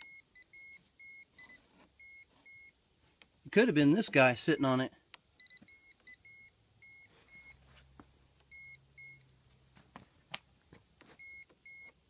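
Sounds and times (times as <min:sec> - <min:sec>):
voltage tester beeping: 0:00.0 - 0:02.8, 0:05.4 - 0:07.6, 0:08.5 - 0:09.3.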